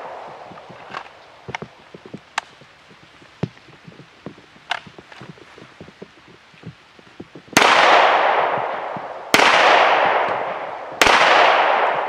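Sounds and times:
handgun shots echoing: 7.6 - 12.0.

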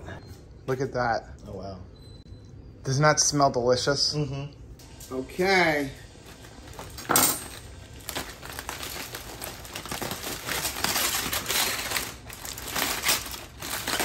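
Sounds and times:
aluminium foil crinkling: 7.6 - 14.0.

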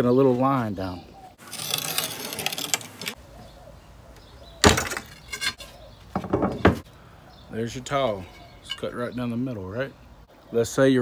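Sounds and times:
cutter wheel scratching tile: 1.4 - 3.2.

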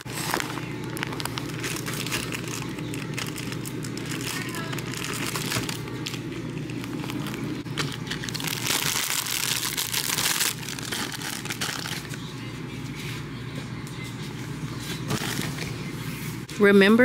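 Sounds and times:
snack wrappers crinkling: 0.0 - 12.3
low steady hum: 0.0 - 17.0.

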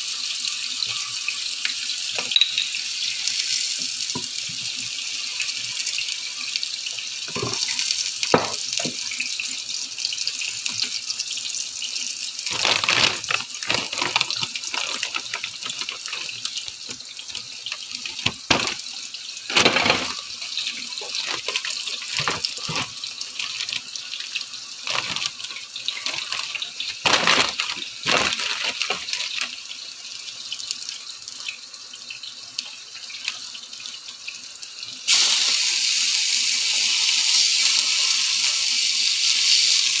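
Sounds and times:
food sizzling in hot pans: 0.0 - 40.0
pans and utensils clattering: 2.1 - 3.0, 7.3 - 9.1, 12.4 - 23.9, 24.8 - 29.6.

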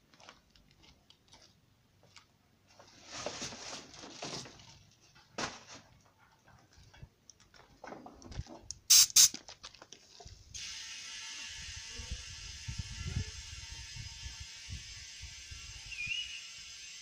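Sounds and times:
compressed air hissing: 8.8 - 9.4.

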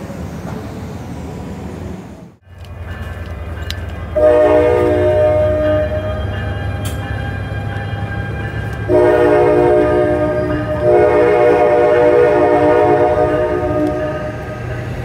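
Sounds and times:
low rumble of train: 0.0 - 15.0
train horn chord: 4.2 - 7.0, 8.8 - 14.7.

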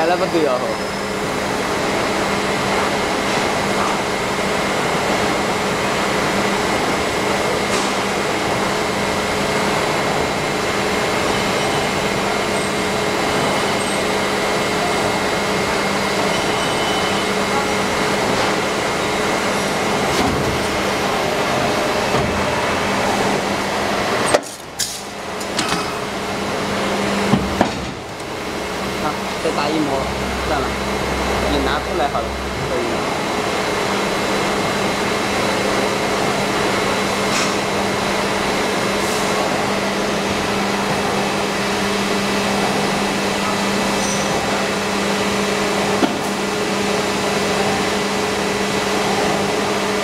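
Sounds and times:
hydraulic machine hum: 0.0 - 50.0.

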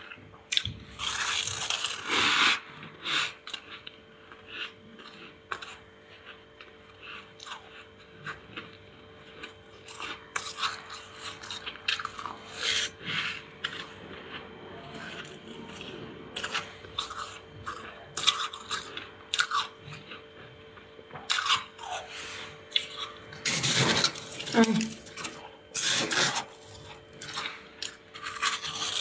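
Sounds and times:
spoon scraping frost: 10.4 - 13.9, 22.0 - 26.9.

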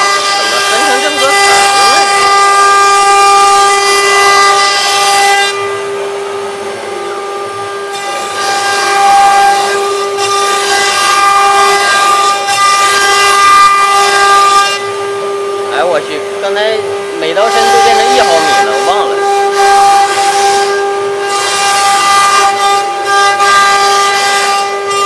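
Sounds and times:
wood router whining: 0.0 - 25.0.

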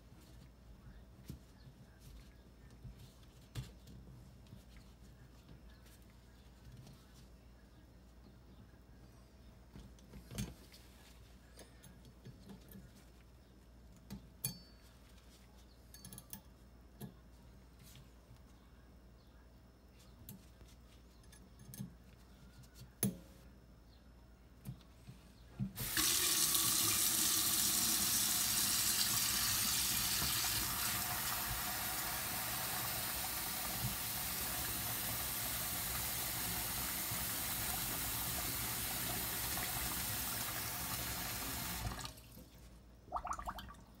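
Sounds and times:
faucet water running into sink: 25.8 - 42.1.

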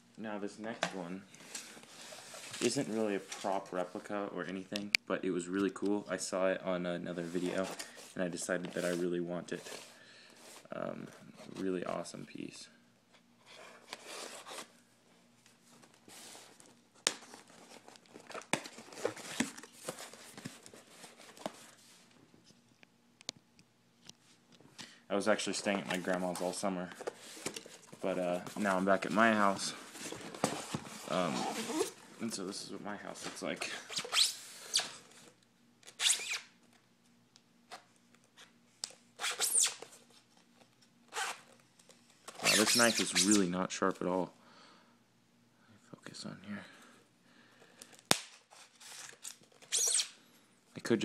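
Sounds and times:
foam squeaks: 33.9 - 34.9, 36.0 - 36.5, 39.2 - 39.8, 42.4 - 43.4, 49.7 - 50.2
tape and cardboard tearing: 35.8 - 36.5, 39.2 - 39.9, 41.1 - 41.5, 42.3 - 43.4, 48.1 - 50.2.

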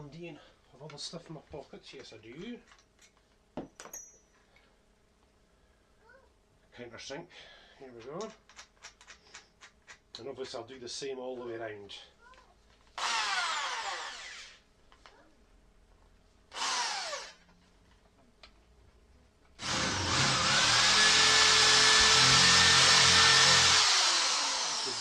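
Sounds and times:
electric drill running: 13.0 - 14.6, 16.5 - 17.4, 19.6 - 25.0.

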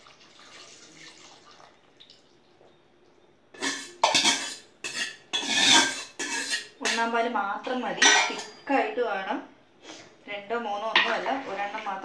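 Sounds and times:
liquid pouring into pot: 0.0 - 2.5
ladle scraping steel bowl: 3.6 - 7.0.

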